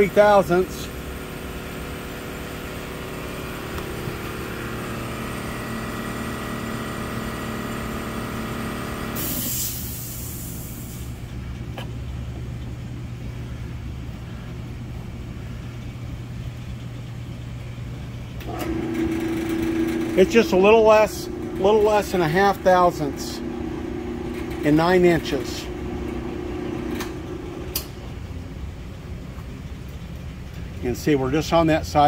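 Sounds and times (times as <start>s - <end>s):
machine whine: 0.0s - 11.2s, 15.8s - 28.5s
machine hum: 0.0s - 31.3s
short hiss: 9.2s - 11.2s
click: 27.7s - 27.9s.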